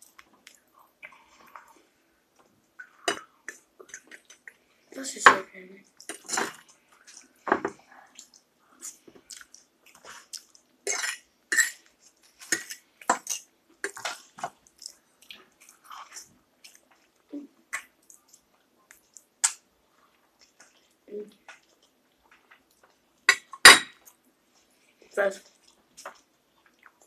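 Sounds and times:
wet chewing and mouth smacks: 0.0s - 1.8s, 8.1s - 10.8s, 11.7s - 24.8s, 25.4s - 27.0s.

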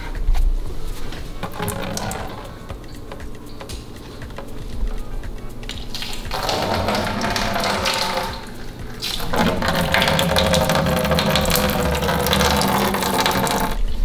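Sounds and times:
cider pouring into a plastic pail: 1.4s - 2.6s, 5.8s - 13.8s.

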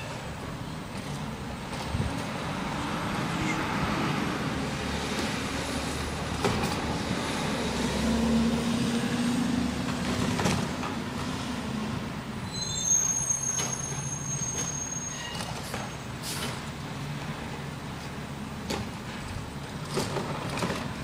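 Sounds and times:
truck engine rumble: 0.0s - 12.5s, 15.5s - 21.0s
high-pitched squeal: 12.4s - 15.5s.

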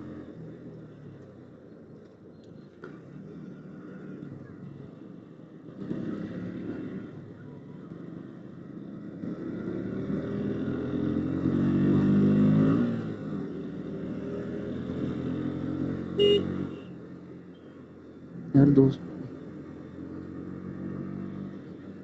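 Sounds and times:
road and wind noise: 0.0s - 22.0s
motorcycle engine running: 13.5s - 22.0s.

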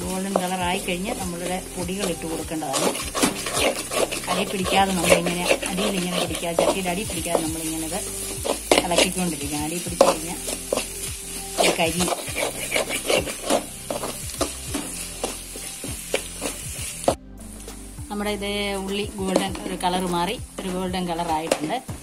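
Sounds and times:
metal spatula scraping a pan: 0.0s - 17.1s
onions sizzling in oil: 0.0s - 22.0s.

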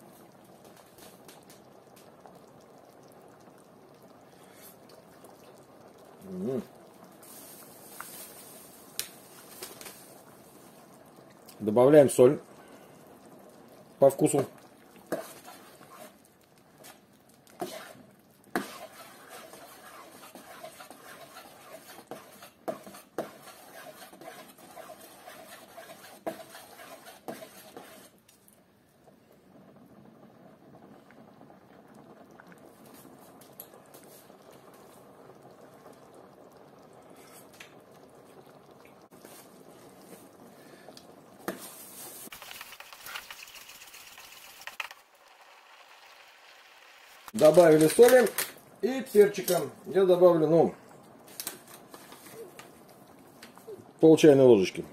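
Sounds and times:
spoon stirring soup in pot: 14.4s - 28.5s.

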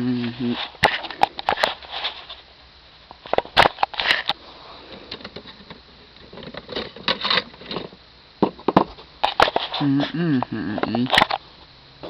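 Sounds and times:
plastic toy car handling: 3.3s - 9.8s.

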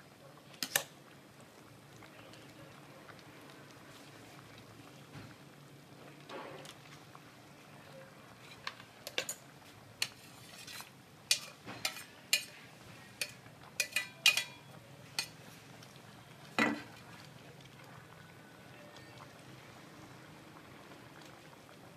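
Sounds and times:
metal spoon clinking against pot: 8.5s - 9.4s, 10.0s - 12.6s, 13.2s - 15.4s.

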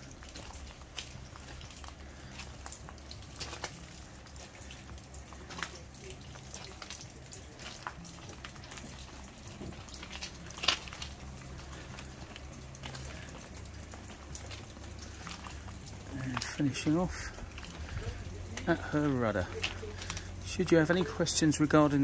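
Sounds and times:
wind rumbling on microphone: 17.1s - 18.5s.

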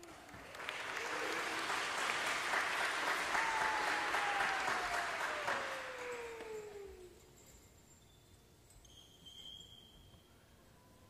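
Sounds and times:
audience applauding: 0.0s - 7.2s
thin tone sliding down: 3.4s - 7.3s.

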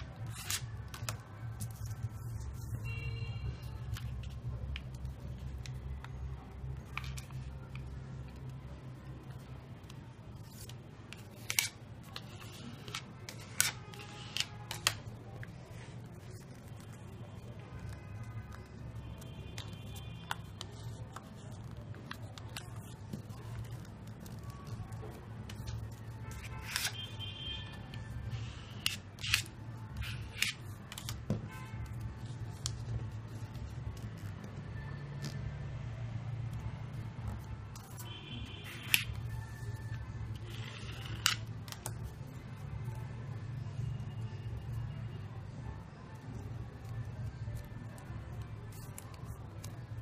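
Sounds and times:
card scraping along paper fold: 0.0s - 2.9s, 10.4s - 14.9s, 25.4s - 27.1s
paper rustling: 0.0s - 3.0s
paper crackling and rustling: 0.0s - 8.5s, 9.2s - 27.3s, 28.4s - 34.6s, 46.8s - 50.0s.

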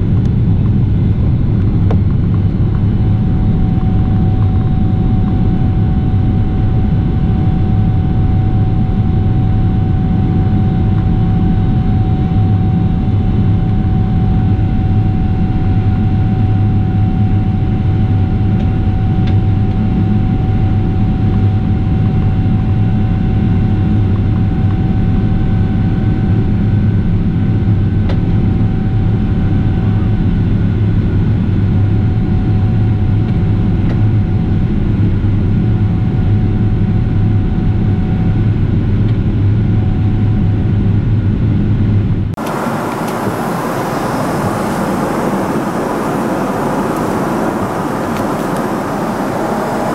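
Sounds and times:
jet engine rumble in cabin: 0.0s - 49.9s
airflow: 42.4s - 49.9s
thin steady whine: 42.4s - 49.9s.

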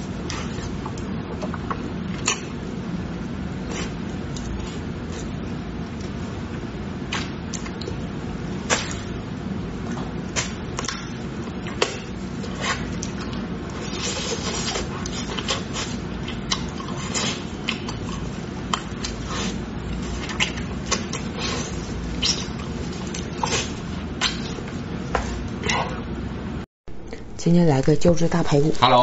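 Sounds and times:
steady low hum: 0.0s - 29.0s
wet chewing and lip smacks: 14.5s - 24.7s.

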